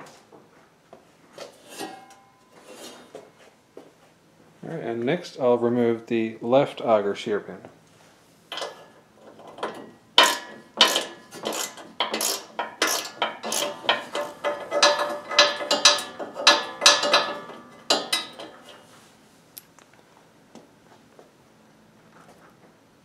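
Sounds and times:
hand tools clicking on metal: 8.5 - 18.8.

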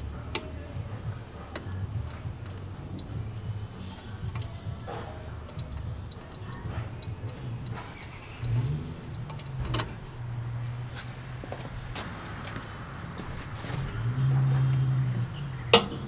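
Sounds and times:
steady low hum: 0.0 - 16.0
light metallic clicks and taps: 3.8 - 10.0.

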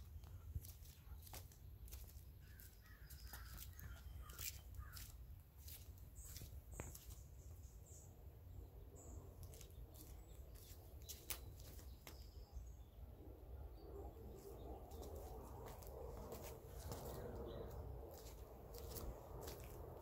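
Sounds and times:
faint low rumble: 12.2 - 20.0.

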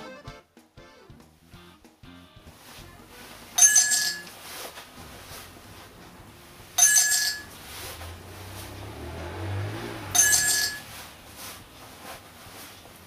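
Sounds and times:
coin clink sound effect: 3.6 - 4.4, 6.8 - 7.6, 10.2 - 11.0.

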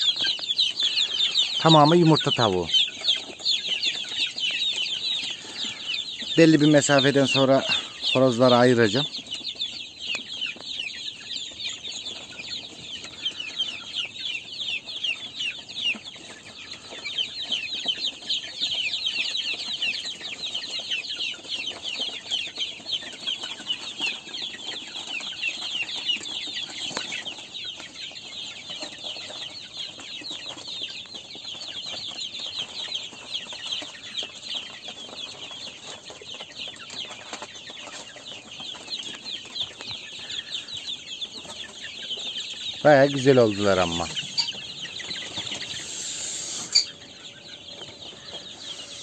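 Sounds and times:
chicks peeping: 0.0 - 49.0.

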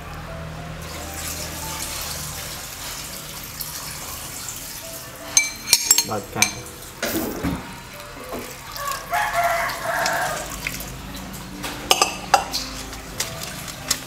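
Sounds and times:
spoon clinking on metal bowl: 5.4 - 6.7, 11.9 - 13.3
rooster crowing: 8.7 - 10.7.

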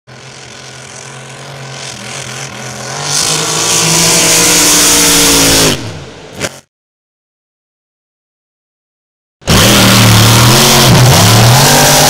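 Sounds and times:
powerboat engine passing: 0.1 - 6.2.

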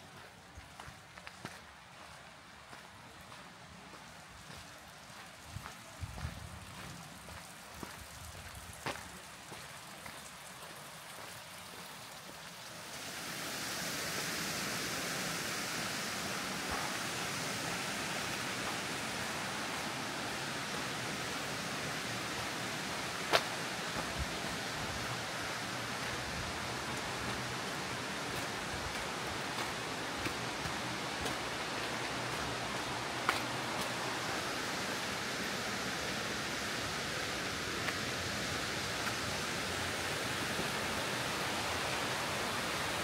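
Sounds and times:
faint footsteps: 0.0 - 12.4, 22.3 - 34.4
waterfall rushing: 11.6 - 43.0.

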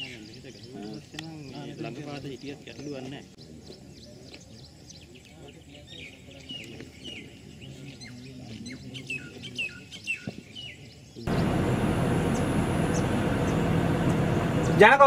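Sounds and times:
birds chirping: 0.0 - 15.0
road and wind noise: 11.3 - 15.0.

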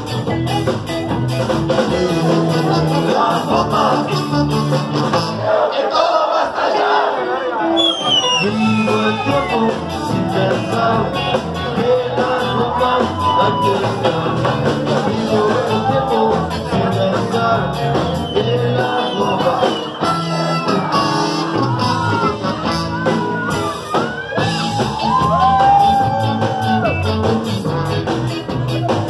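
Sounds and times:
live rock band with horns: 0.0 - 29.0
saxophone melody bending: 4.0 - 5.6, 20.0 - 24.8.

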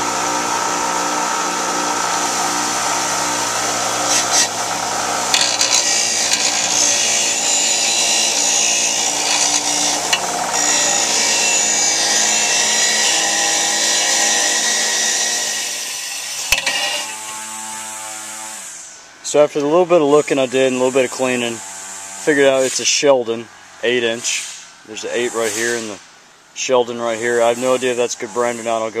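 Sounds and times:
bench grinder motor hum: 0.0 - 18.7
blade grinding on wheel: 3.5 - 18.4.

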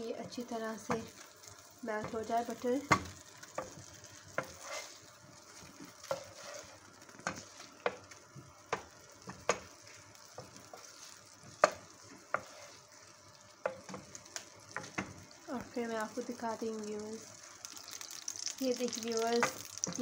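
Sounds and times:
butter sizzling in a pan: 0.0 - 20.0
wooden spatula stirring: 0.2 - 15.2.

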